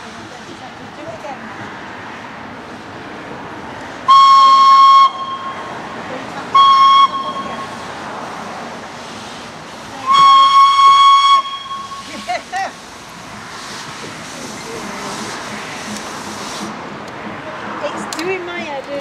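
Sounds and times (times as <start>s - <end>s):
steam hissing: 4.0s - 17.0s
steam whistle: 4.1s - 5.7s, 6.5s - 7.8s, 10.0s - 12.3s.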